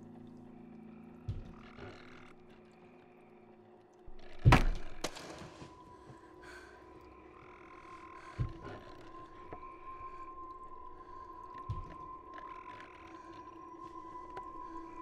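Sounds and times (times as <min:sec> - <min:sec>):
low ambient drone: 0:00.0 - 0:15.0.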